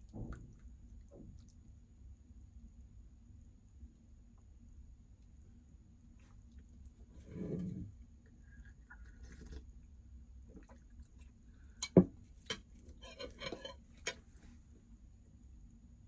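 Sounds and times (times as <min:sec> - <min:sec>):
spoon scraping glass plate: 0:07.2 - 0:07.8, 0:12.9 - 0:14.2.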